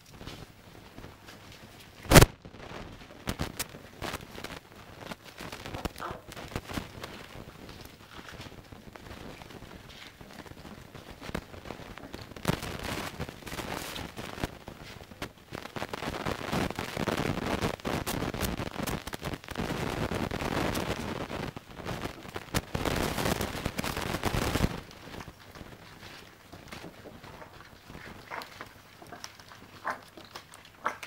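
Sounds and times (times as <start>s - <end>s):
puppies chewing and licking: 0.1s - 16.2s, 20.5s - 31.0s
paws on paper: 23.6s - 31.0s.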